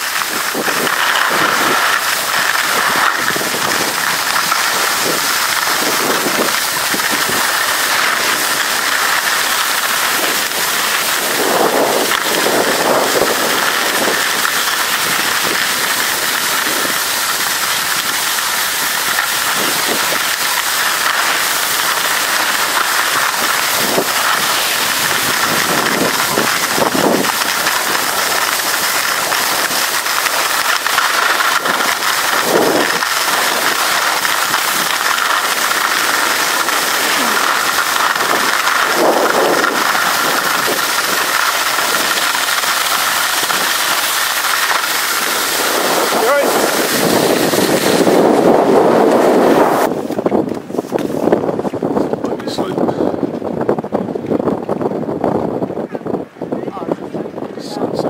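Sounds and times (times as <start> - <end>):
skis scraping over snow: 0.0 - 58.0
wind on microphone: 0.0 - 58.0.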